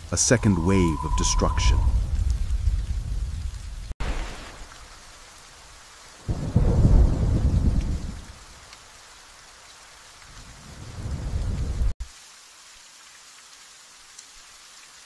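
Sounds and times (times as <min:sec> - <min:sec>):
thunder rumbling: 0:00.0 - 0:04.7, 0:06.3 - 0:08.4, 0:10.6 - 0:11.9
steady rain: 0:00.0 - 0:15.0.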